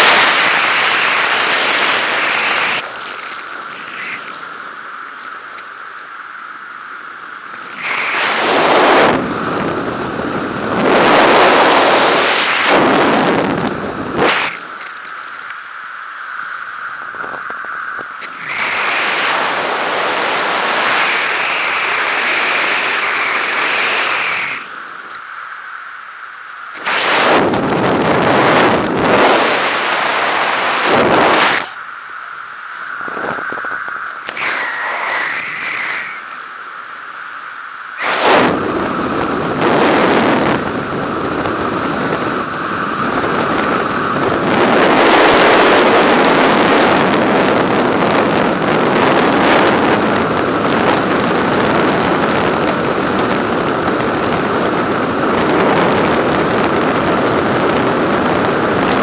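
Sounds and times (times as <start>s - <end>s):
wind buffeting microphone: 7.6s - 14.9s, 16.8s - 25.2s, 26.8s - 36.4s, 38.0s - 59.0s.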